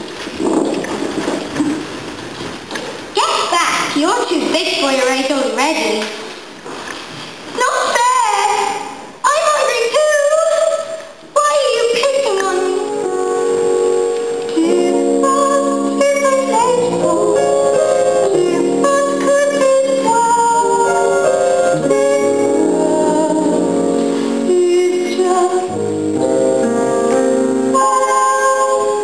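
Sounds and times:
sustained keyboard chords: 0:12.5 - 0:29.0
person singing: 0:14.4 - 0:29.0.

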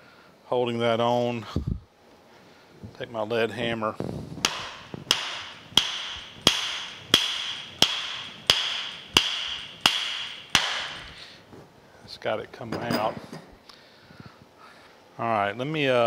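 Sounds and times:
hammer striking steel shaft: 0:04.4 - 0:11.3.

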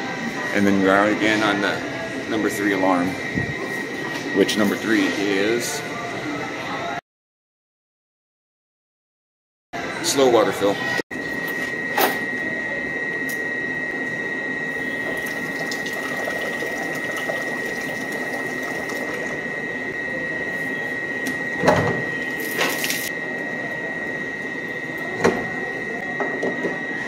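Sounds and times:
high-pitched whine: 0:09.8 - 0:27.0.

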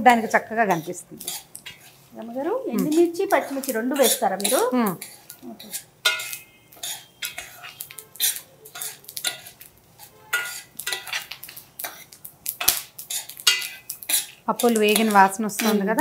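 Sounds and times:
metal spoon scraping a pan: 0:00.0 - 0:16.0.

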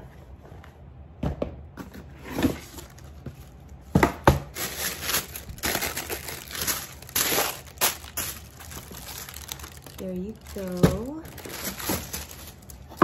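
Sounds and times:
tissue paper crinkling: 0:04.5 - 0:13.0.

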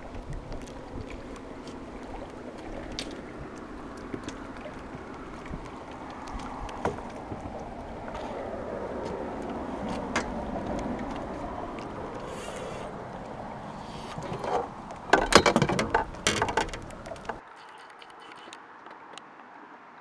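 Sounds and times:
wind buffeting microphone: 0:00.0 - 0:17.4
knocks and rattles of fish handling: 0:02.6 - 0:12.2, 0:14.0 - 0:17.4.

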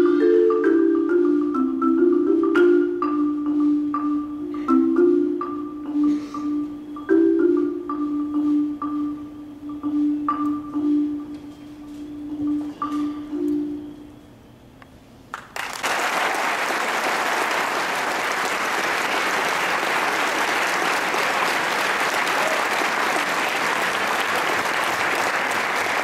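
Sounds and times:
audience applause: 0:15.4 - 0:26.0.

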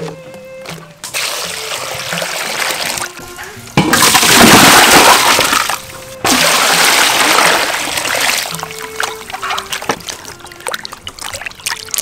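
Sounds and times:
water sloshing: 0:03.8 - 0:12.0
water pouring into basin: 0:04.0 - 0:12.0.

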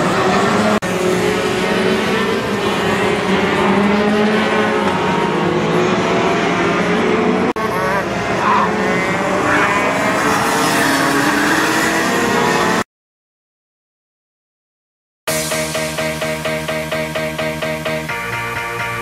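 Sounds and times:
go-kart engines droning: 0:00.0 - 0:12.8.

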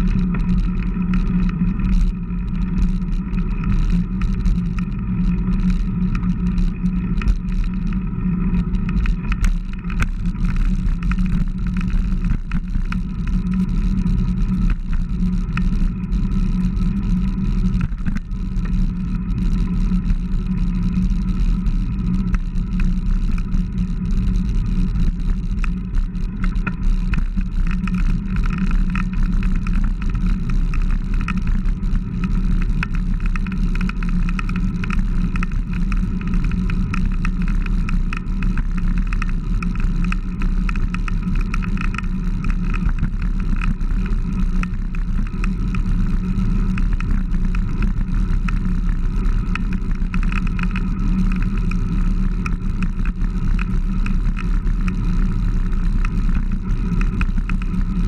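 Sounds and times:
bicycle tyre and road noise: 0:00.0 - 0:58.0
wind rumble on microphone: 0:00.0 - 0:58.0.

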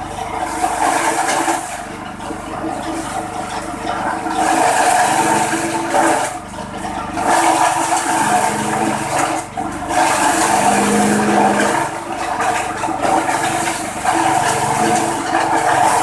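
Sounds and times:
engine drone: 0:00.0 - 0:16.0
stalks being shredded: 0:07.0 - 0:16.0.

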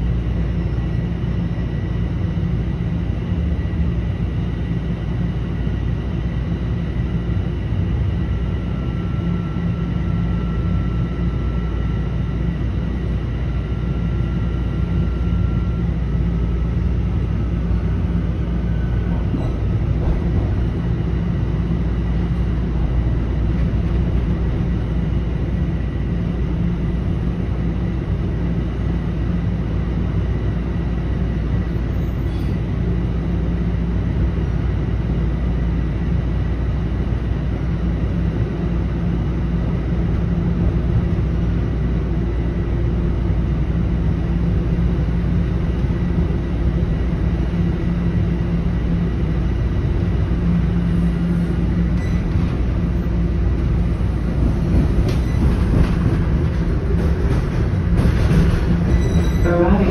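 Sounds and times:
train wheels rumbling on rail: 0:00.0 - 0:59.9
faint high whine: 0:31.6 - 0:32.6.

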